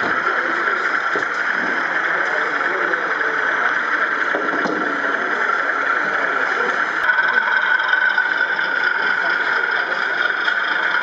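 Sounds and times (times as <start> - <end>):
busy exhibition hall din: 0.0 - 11.0.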